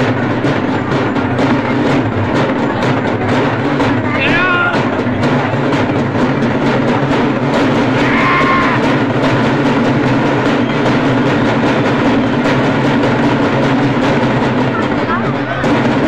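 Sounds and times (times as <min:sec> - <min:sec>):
barrel drums beating: 0:00.0 - 0:16.0.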